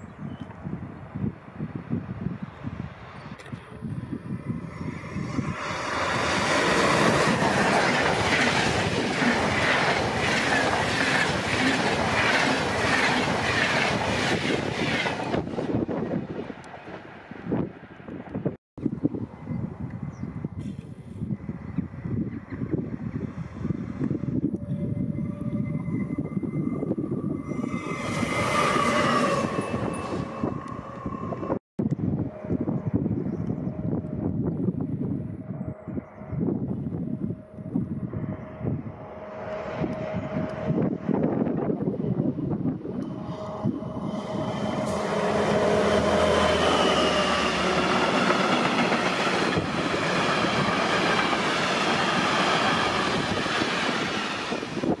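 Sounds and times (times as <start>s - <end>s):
diesel locomotive passing: 1.0s - 55.0s
train wheels on rails: 3.4s - 17.2s, 42.7s - 55.0s
engine whine: 18.9s - 55.0s
thin whining tones: 24.0s - 41.7s.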